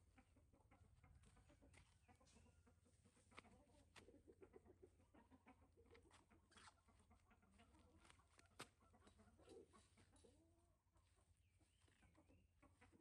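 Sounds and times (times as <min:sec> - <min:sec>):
faint animal calls: 0:03.1 - 0:10.7.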